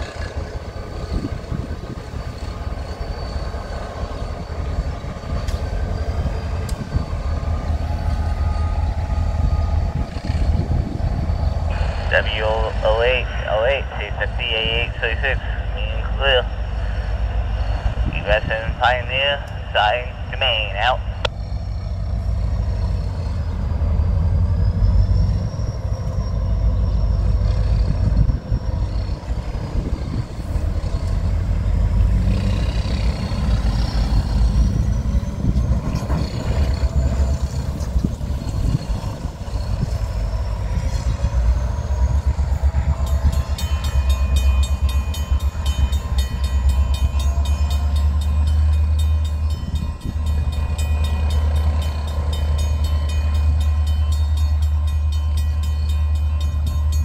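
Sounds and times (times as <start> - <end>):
steady low rumble: 8.9 - 21.9
railroad crossing bell ringing: 20.8 - 57.0.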